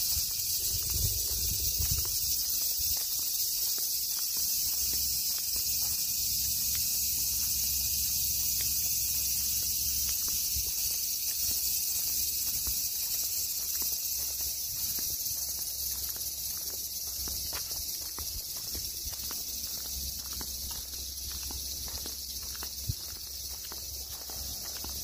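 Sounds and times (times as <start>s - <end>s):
low wind rumble on microphone: 0.0s - 3.1s
insects chorus: 0.0s - 25.0s
soft footsteps: 0.0s - 25.0s.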